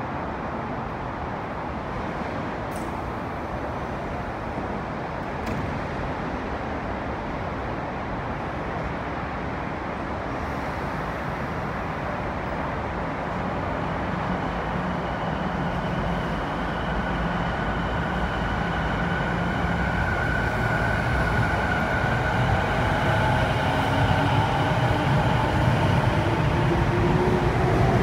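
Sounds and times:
train wheels rumbling: 13.4s - 28.0s.

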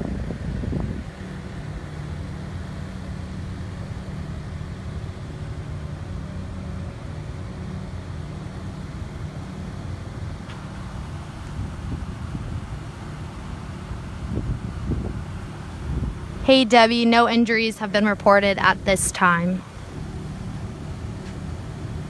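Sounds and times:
wind on microphone: 0.0s - 1.9s, 11.4s - 13.1s, 13.9s - 17.1s
vehicle engine idling: 0.0s - 22.0s.

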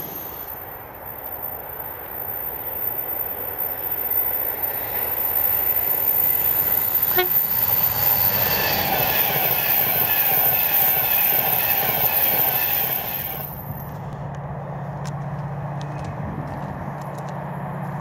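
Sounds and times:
high whine: 0.0s - 14.0s
electric train passing: 0.0s - 15.0s.

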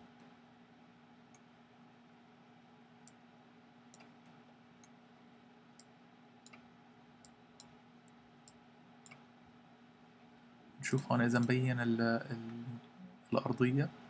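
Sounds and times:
low steady hum: 0.0s - 14.0s
computer mouse clicks: 3.9s - 5.0s, 5.8s - 9.2s.

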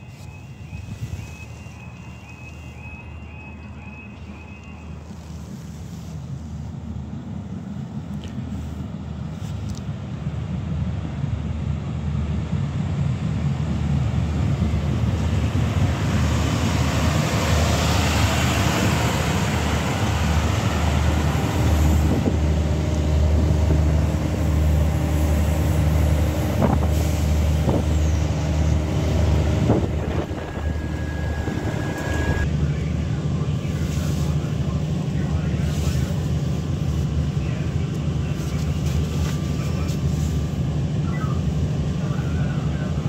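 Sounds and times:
diesel train drone: 0.0s - 43.0s
train wheels rushing past: 15.2s - 32.5s
steady high beep: 30.1s - 32.4s.

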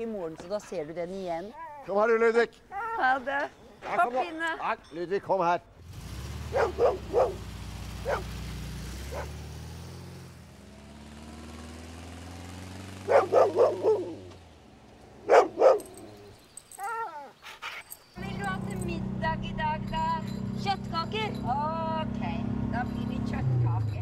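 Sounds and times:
car engine running: 6.0s - 16.2s, 18.2s - 24.0s
dog barking: 6.5s - 8.3s, 9.1s - 9.4s, 13.0s - 14.3s, 15.2s - 16.3s.

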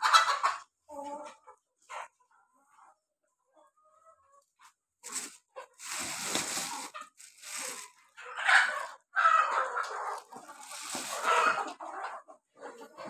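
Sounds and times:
chickens clucking: 0.0s - 13.0s
plastic sack crinkling: 5.0s - 8.0s, 10.1s - 11.6s.

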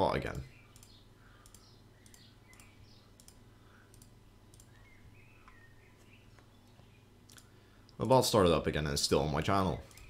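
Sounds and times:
low steady hum: 0.0s - 10.0s
computer mouse clicks: 0.7s - 5.6s.

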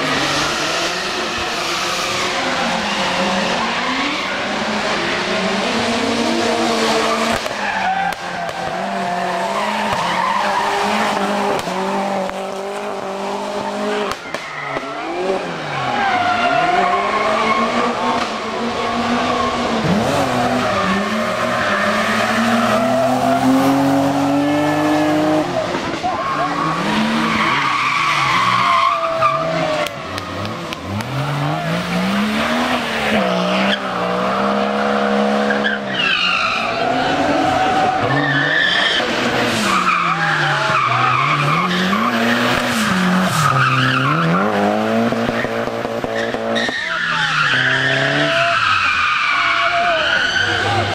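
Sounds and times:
car engines revving: 0.0s - 50.9s.

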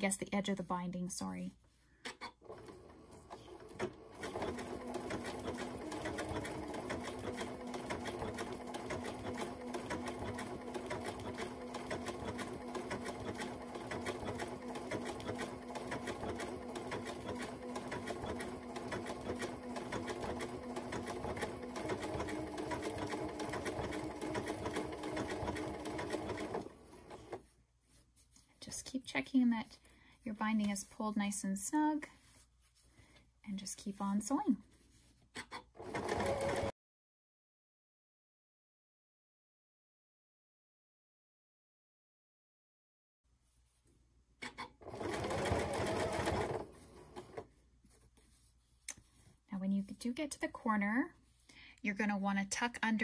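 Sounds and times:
sewing machine stitching: 2.4s - 27.5s, 35.7s - 36.7s, 44.8s - 47.5s.

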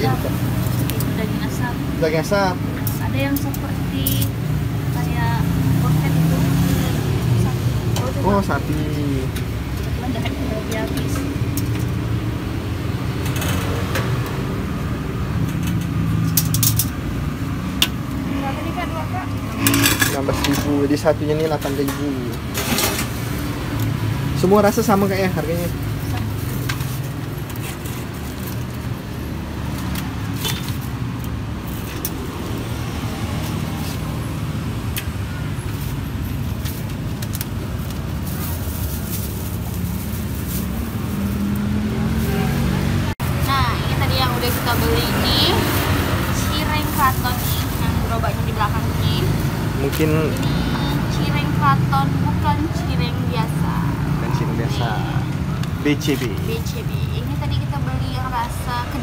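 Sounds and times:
road vehicle engine hum: 0.0s - 59.0s
bags rustling and clicking: 36.4s - 41.7s.

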